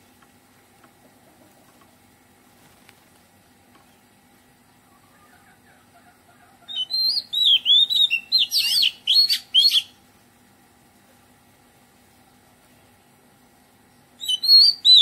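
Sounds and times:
bird singing whistled notes: 6.7s - 10.0s, 14.2s - 15.0s.

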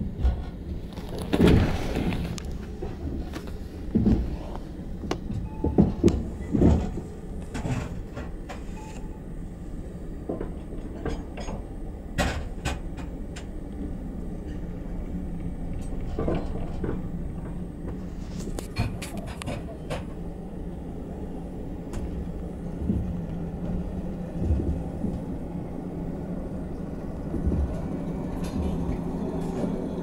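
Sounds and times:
train carriage rumble: 0.0s - 30.0s
clanks and knocks: 5.1s - 8.7s, 15.7s - 18.0s.

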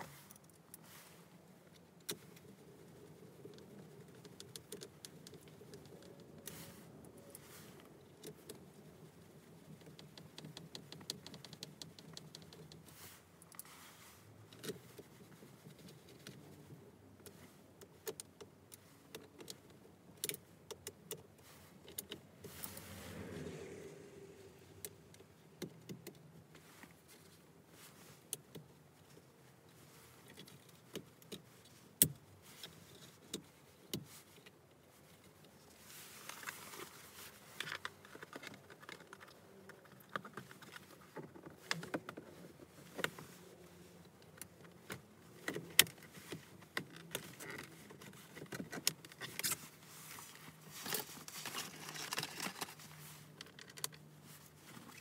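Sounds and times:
small plastic clicks and rattles: 9.6s - 12.8s
rustling: 21.3s - 55.0s.

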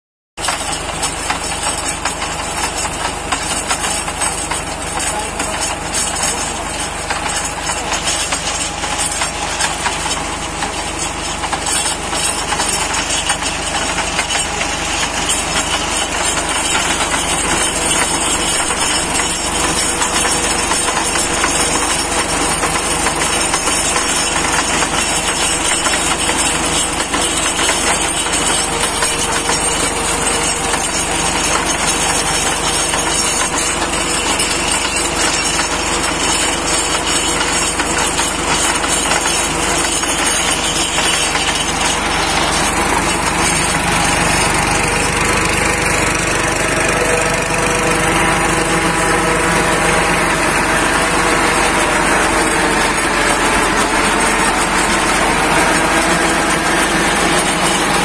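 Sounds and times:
tractor diesel engine clattering: 0.4s - 58.0s.

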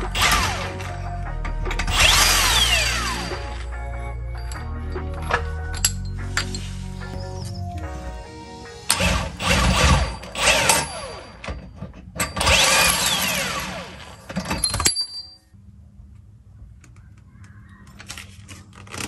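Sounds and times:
impact wrench running: 0.0s - 1.0s, 1.7s - 3.6s, 8.9s - 14.6s.

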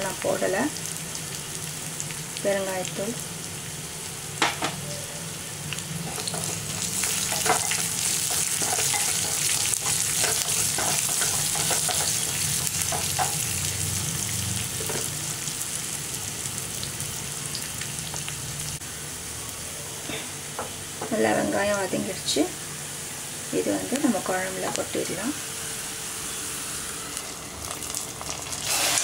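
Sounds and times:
food sizzling in hot oil: 0.0s - 29.0s
spatula stirring in pan: 6.0s - 13.4s.

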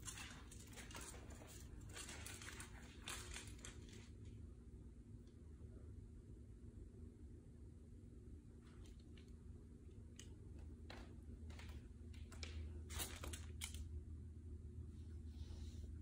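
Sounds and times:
dog claws on hardwood floor: 0.0s - 4.2s, 10.1s - 13.9s
low room hum: 0.0s - 16.0s.

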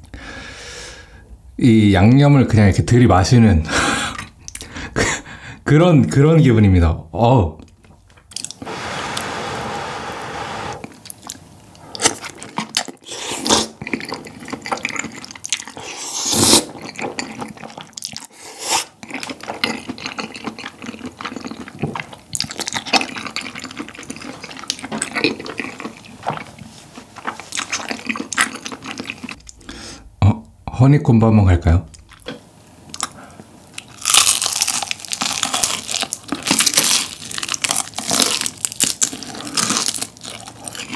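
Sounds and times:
noodle slurping: 8.4s - 11.0s, 11.9s - 19.0s
wet chewing: 10.8s - 29.6s.

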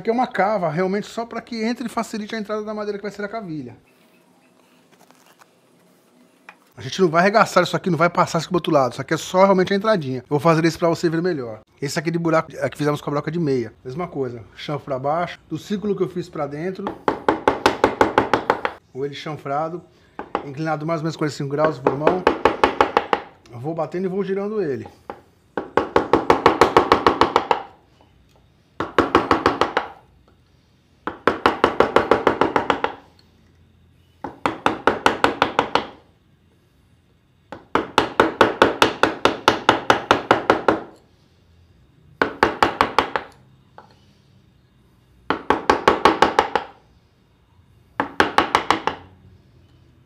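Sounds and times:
mallet tapping a wood chisel: 16.8s - 18.8s, 21.6s - 23.3s, 24.8s - 27.8s, 28.8s - 30.0s, 31.0s - 33.0s, 34.2s - 36.0s, 37.5s - 41.0s, 42.2s - 43.9s, 45.3s - 46.8s, 48.0s - 49.1s.

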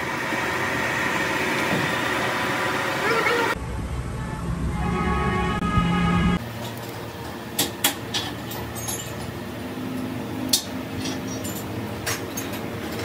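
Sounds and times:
lathe machine hum: 0.0s - 3.6s
metal tools clinking: 8.1s - 9.4s, 10.5s - 13.0s.

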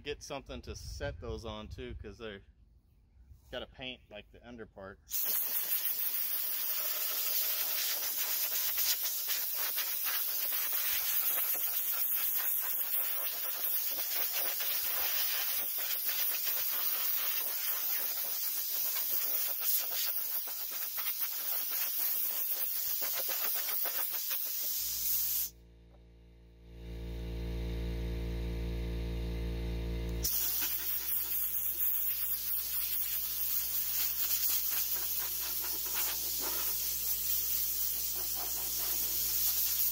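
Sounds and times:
air blow gun hissing: 5.1s - 25.6s, 30.2s - 39.9s
low hum: 25.6s - 30.2s.

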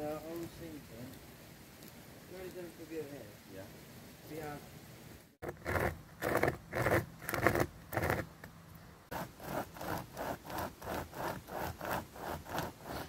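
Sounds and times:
hand saw cutting wood: 5.4s - 8.3s, 9.1s - 13.0s.

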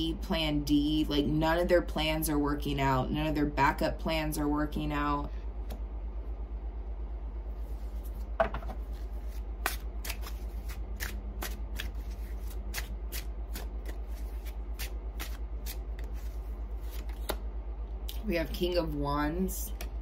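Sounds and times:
steady low hum: 0.0s - 20.0s
cards snapping while shuffled: 9.6s - 17.4s.

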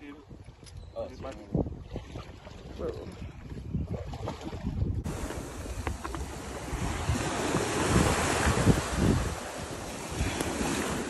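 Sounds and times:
wind buffeting microphone: 0.0s - 11.0s
surf breaking on sand: 5.1s - 11.0s.

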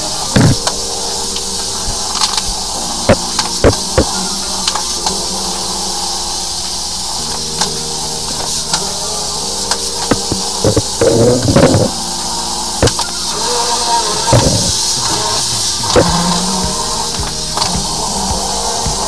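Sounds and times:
water spray hiss: 0.0s - 19.0s.

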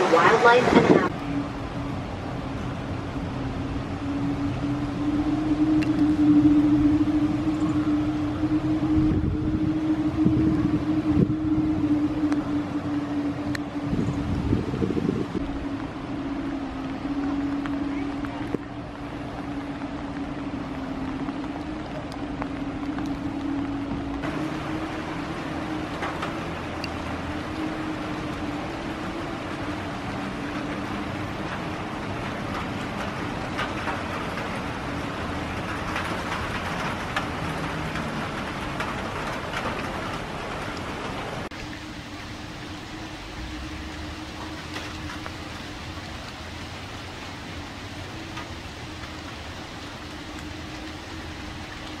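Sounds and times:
continuous hiss: 15.3s - 52.0s.

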